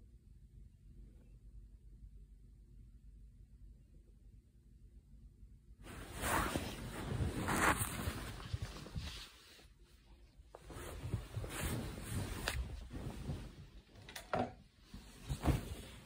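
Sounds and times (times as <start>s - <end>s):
rustling and handling noises: 5.8s - 16.0s.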